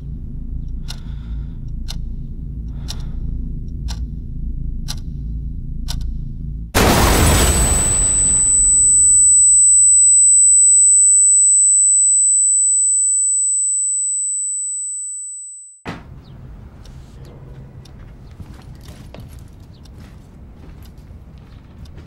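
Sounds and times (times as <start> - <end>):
low hum: 0.0 - 22.0
high steady ringing tone: 6.8 - 15.8.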